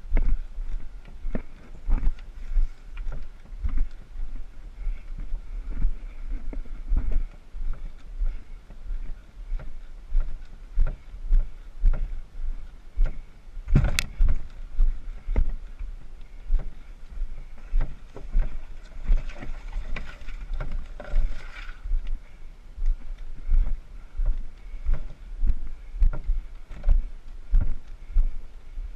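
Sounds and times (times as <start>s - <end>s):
footsteps on rocky trail: 0.0s - 28.9s
brush rustling against canoe: 12.0s - 22.4s.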